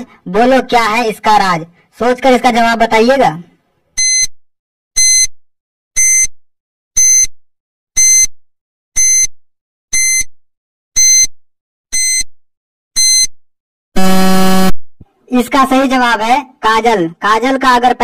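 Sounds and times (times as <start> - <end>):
short high beeps: 4.0 - 4.4, 5.0 - 5.3, 6.0 - 6.3, 7.0 - 7.3, 8.0 - 8.3, 9.0 - 9.3, 9.9 - 10.4, 11.0 - 11.3, 11.9 - 12.3, 13.0 - 13.4.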